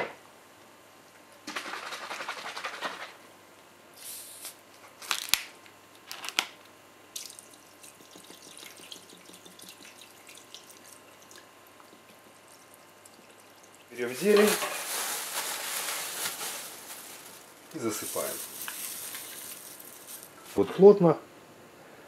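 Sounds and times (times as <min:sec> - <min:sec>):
liquid trickling into bowl: 0:07.2 - 0:14.0
plastic bottle handled: 0:14.2 - 0:17.4.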